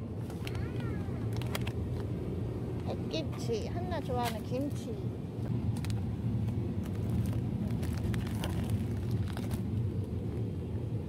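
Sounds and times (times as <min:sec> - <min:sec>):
plastic bag rustling: 0:06.8 - 0:09.6.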